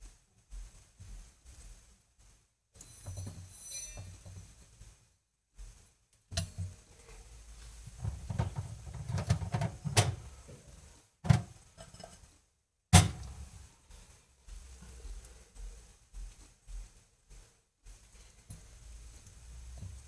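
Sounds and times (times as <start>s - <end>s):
low rumbling handling noise: 7.9s - 10.7s
kitchen objects knocking: 8.0s - 10.2s.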